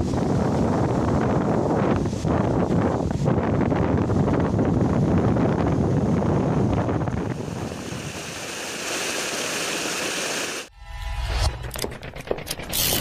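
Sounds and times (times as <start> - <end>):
wind buffeting microphone: 0.0 - 8.5
water cascading over rocks: 7.3 - 10.7.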